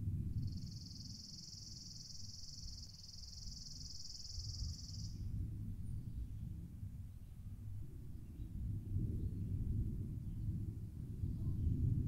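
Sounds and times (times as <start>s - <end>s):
low background rumble: 0.0s - 3.7s.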